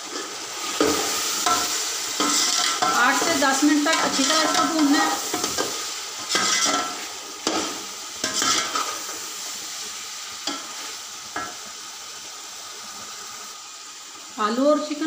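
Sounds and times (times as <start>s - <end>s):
food sizzling in oil: 0.0s - 15.0s
metal spoon scraping a pot: 6.3s - 7.0s.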